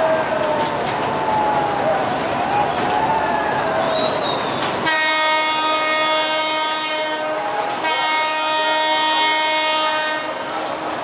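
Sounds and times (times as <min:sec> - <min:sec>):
passing train: 0:00.0 - 0:11.0
train horn blasts: 0:04.8 - 0:10.5.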